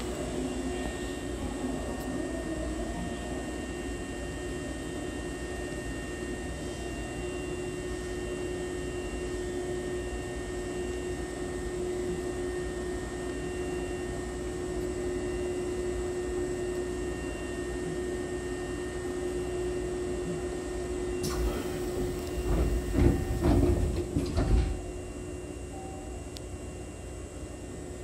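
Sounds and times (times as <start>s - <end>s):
electrical hum and hiss: 21.2s - 25.2s.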